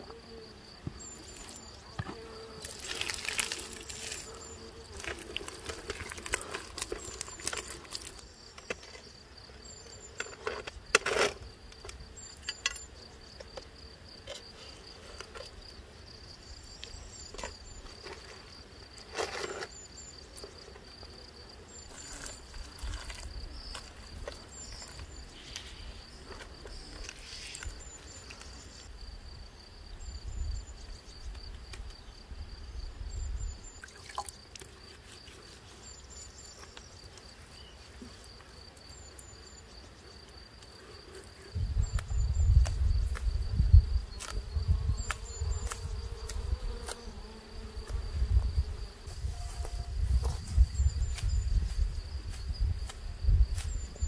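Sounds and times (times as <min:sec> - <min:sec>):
insects chirring: 0:00.0 - 0:54.0
hands packing wet clay mud: 0:02.6 - 0:08.2
wind rumble on microphone: 0:41.5 - 0:46.8, 0:47.8 - 0:54.0.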